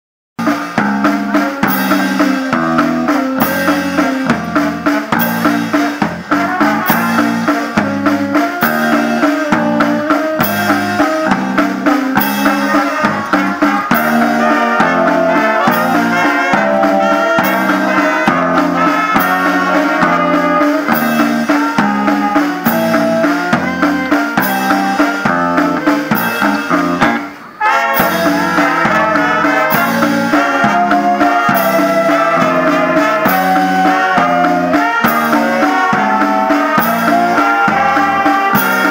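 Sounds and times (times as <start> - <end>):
bass drum: 0.4 - 27.3, 27.9 - 38.9
electric bass guitar: 0.4 - 27.4
saxophones: 0.4 - 38.9
snare drum: 0.4 - 38.9
trumpets: 0.4 - 38.9.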